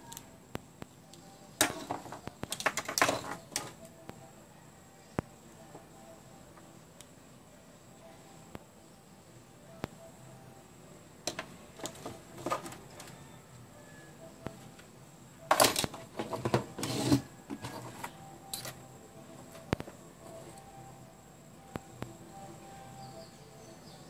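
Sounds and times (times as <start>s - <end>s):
plastic parts clicking: 1.1s - 3.9s, 15.5s - 18.8s
plastic parts clattering and scraping: 1.6s - 3.9s, 11.3s - 13.2s, 15.5s - 18.8s.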